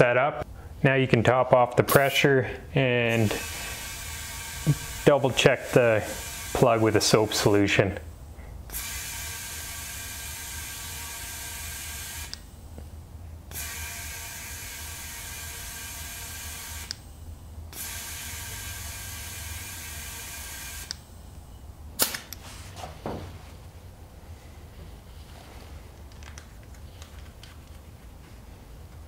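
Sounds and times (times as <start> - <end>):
compressed air hissing into tire: 3.1 - 7.3
tire chuck click and air puff: 22.0 - 22.4.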